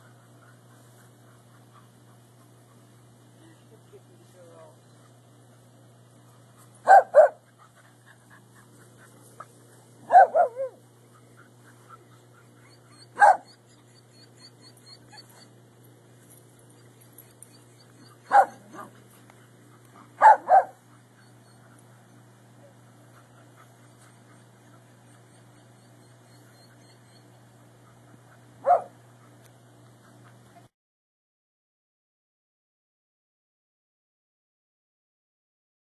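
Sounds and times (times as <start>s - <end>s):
dogs barking: 6.8s - 7.7s, 10.0s - 15.4s, 16.6s - 30.4s.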